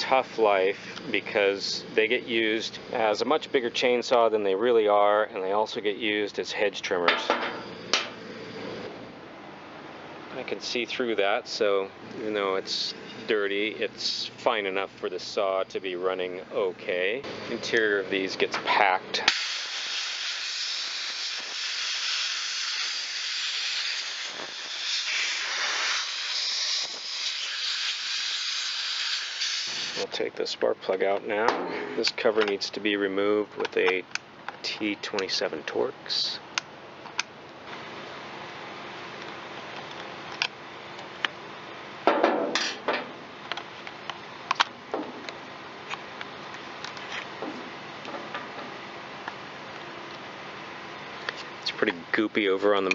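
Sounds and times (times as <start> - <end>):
compressed air hissing from nozzle: 19.3 - 30.1.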